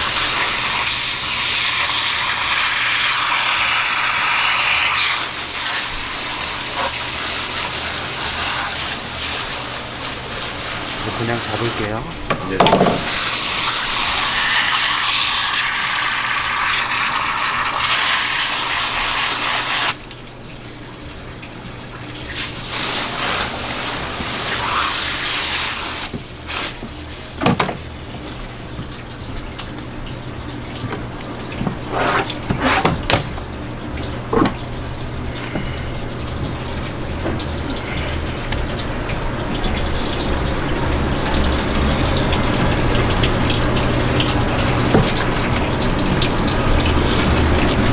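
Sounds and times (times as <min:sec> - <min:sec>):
running water: 0:00.0 - 0:47.9
hose spray hissing: 0:04.4 - 0:11.9, 0:22.3 - 0:26.8.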